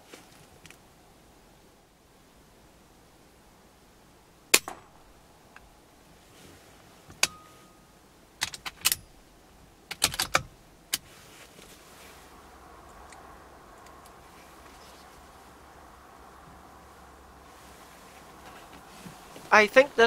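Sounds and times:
air rifle shot: 4.5s - 5.0s.

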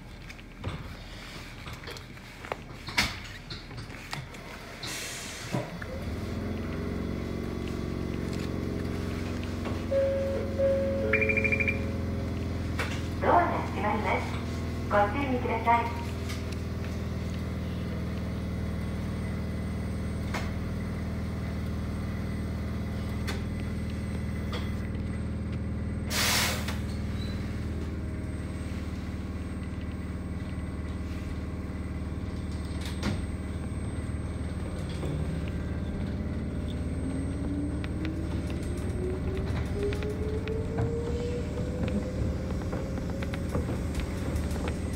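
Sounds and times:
electric train equipment hum: 4.2s - 44.9s
compressed air hiss: 26.1s - 26.7s
traction motor whine rising: 27.5s - 44.9s.

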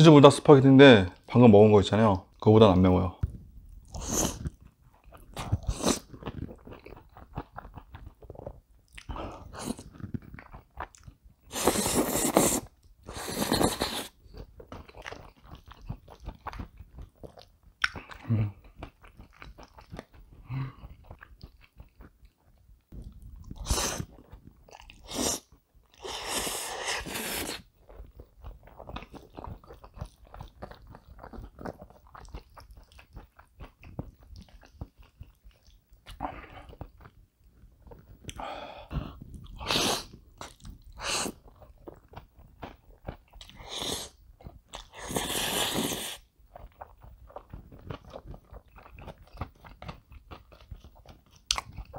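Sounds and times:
wet chewing: 3.2s - 51.9s
noodle slurps: 11.5s - 14.2s, 23.5s - 27.7s, 39.0s - 41.5s, 43.4s - 44.2s, 44.8s - 46.3s.

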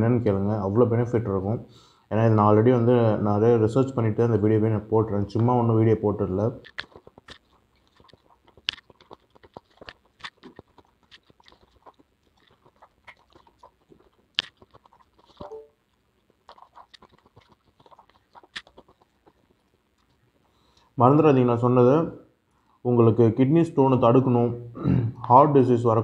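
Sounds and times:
person chewing fruit: 5.3s - 21.0s.

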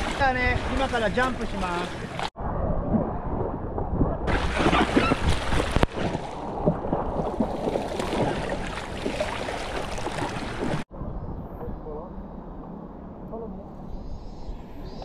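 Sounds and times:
river water rushing and splashing: 7.4s - 10.8s.

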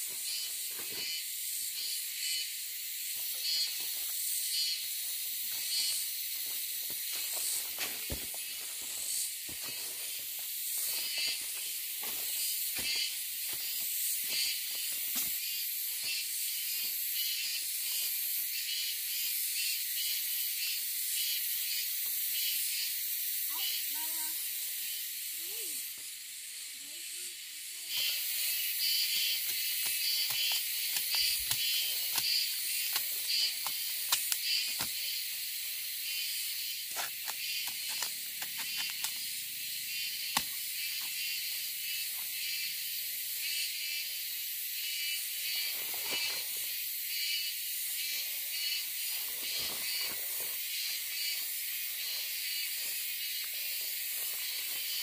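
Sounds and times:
insects chirping: 0.0s - 55.0s.

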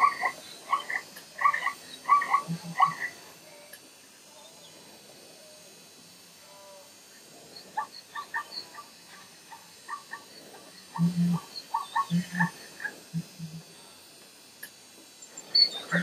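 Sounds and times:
short croaking animal calls: 0.0s - 3.2s, 7.6s - 13.6s, 15.5s - 16.0s.

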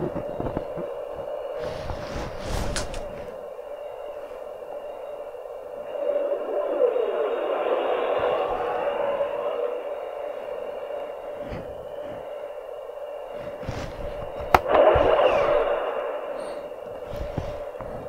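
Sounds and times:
radio-like hum: 0.0s - 18.0s
sharp crack: 14.5s - 16.9s.

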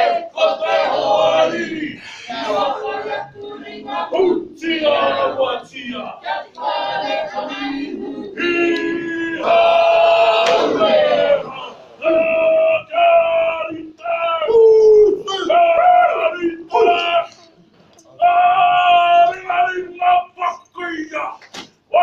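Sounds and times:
men chanting in unison: 0.0s - 14.5s.

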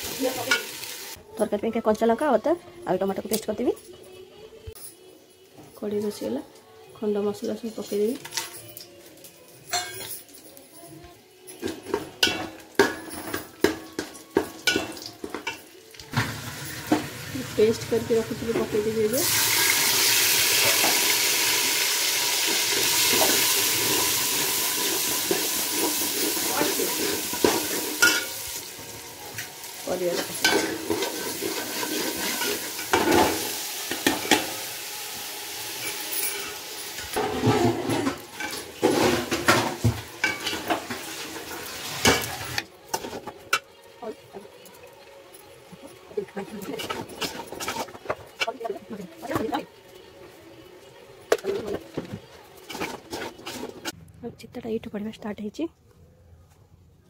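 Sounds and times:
spice paste sizzling in oil: 0.0s - 1.2s, 16.2s - 37.1s
pot ringing: 26.5s - 29.1s
ladle scraping metal pot: 30.1s - 34.5s, 46.6s - 48.6s, 52.5s - 54.0s
spoon scraping a metal pot: 46.6s - 48.5s, 52.6s - 54.0s.

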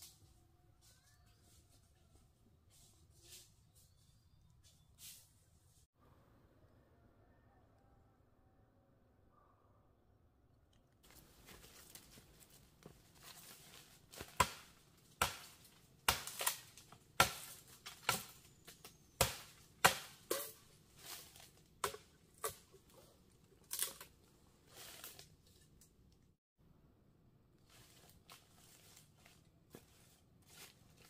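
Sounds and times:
dry leaves rustling: 11.0s - 18.6s, 20.1s - 21.8s, 23.6s - 25.6s, 27.6s - 31.0s
twigs cracking: 11.0s - 26.2s.

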